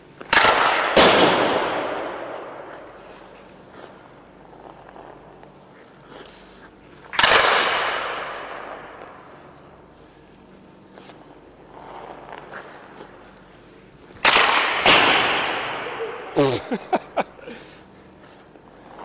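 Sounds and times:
hockey stick slap shot crack: 0.2 - 3.4, 7.1 - 9.2, 14.1 - 16.0.

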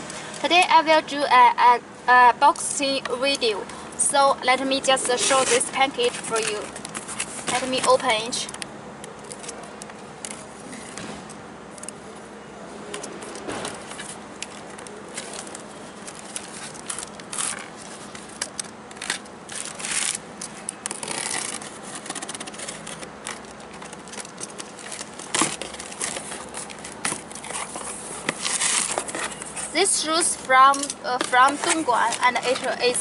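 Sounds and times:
cardboard rustling: 4.9 - 8.4, 12.9 - 33.0
box cutter slitting packing tape: 15.1 - 29.8.

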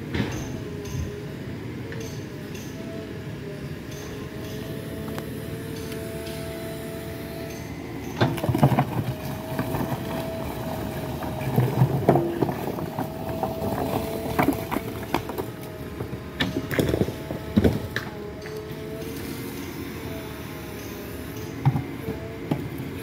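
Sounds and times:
diesel engine running: 0.0 - 23.0
hydraulic whine: 0.0 - 23.0
bucket scraping soil and stones: 8.2 - 18.0.

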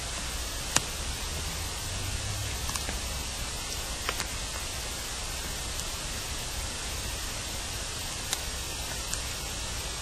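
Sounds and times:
low hum: 0.0 - 8.0
steady amplified hiss: 0.0 - 10.0.

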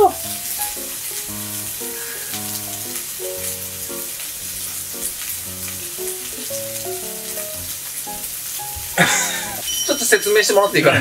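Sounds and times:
gentle background music: 0.0 - 11.0
meat sizzling: 0.0 - 11.0.

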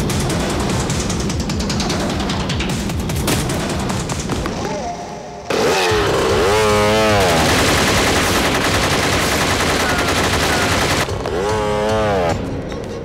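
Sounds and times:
rapid continuous gunfire: 0.0 - 4.6, 6.0 - 11.3.

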